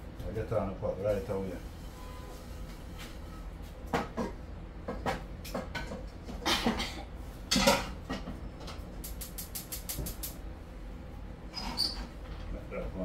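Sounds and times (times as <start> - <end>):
gas igniter clicking: 9.0 - 10.4.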